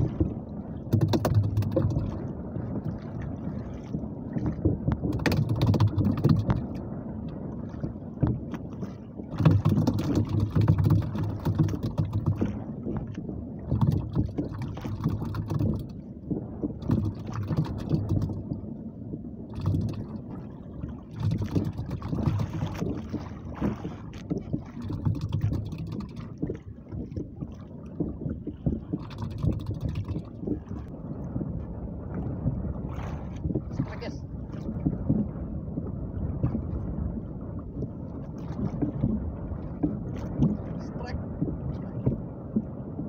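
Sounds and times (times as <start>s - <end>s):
water slapping against boat hull: 0.0s - 43.0s
wind buffeting microphone: 0.0s - 43.0s.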